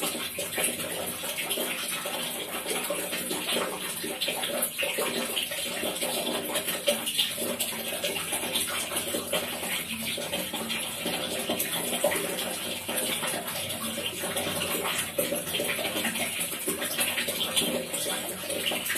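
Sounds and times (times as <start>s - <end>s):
water splashing into plastic tub: 0.0s - 18.9s.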